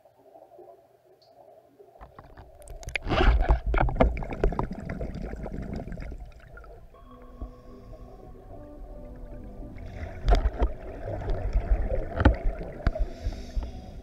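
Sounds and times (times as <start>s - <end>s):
low rumble and clicks: 2.0s - 14.0s
water gurgling and bubbling: 2.0s - 14.0s
faint background music: 6.7s - 14.0s.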